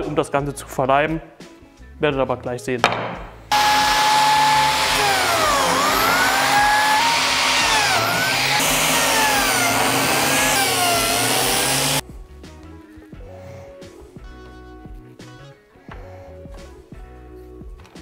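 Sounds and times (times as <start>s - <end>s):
power tool motor whine cutting wood: 3.5s - 12.0s.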